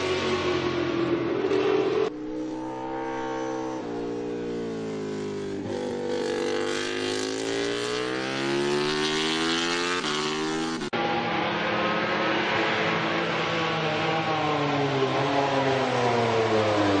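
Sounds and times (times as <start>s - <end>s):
racing motorcycle engine revving: 0.0s - 17.0s.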